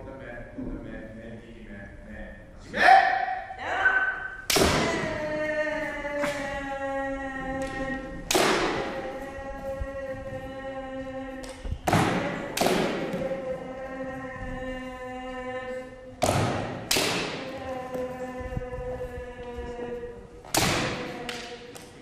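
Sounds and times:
bamboo sword strikes: 4.5 - 5.0, 11.9 - 13.2, 16.2 - 17.5, 20.5 - 21.5.

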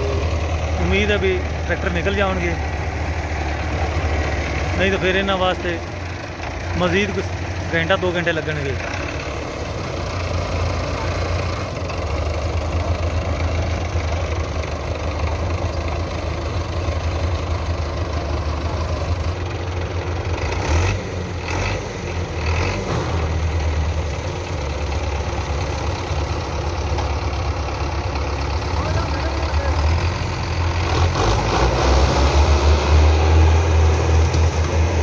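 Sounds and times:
tractor diesel engines running: 0.0 - 35.0.

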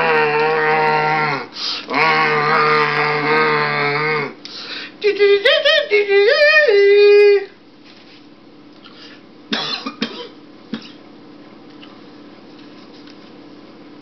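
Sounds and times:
person wailing: 0.0 - 4.4
person coughing: 9.5 - 11.0.

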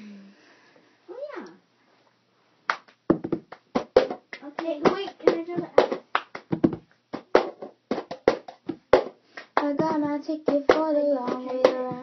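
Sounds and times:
hand claps: 2.7 - 12.0.

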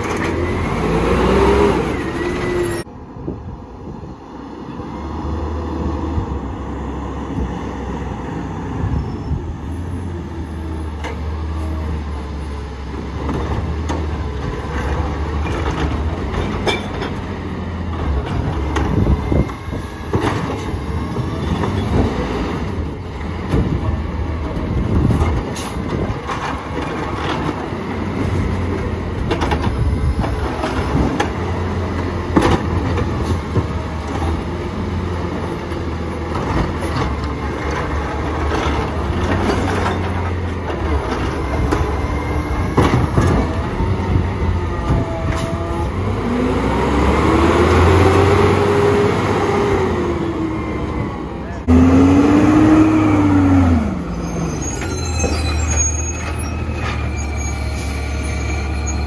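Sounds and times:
diesel engine drone: 0.0 - 58.9
knocks and clanks of carts: 12.9 - 34.6, 35.4 - 45.7.

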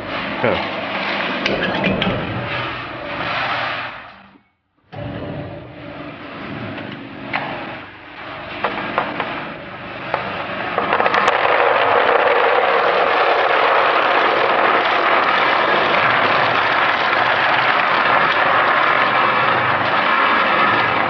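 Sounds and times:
machine humming: 0.0 - 21.0
peanuts rattling down a chute: 10.7 - 21.0.

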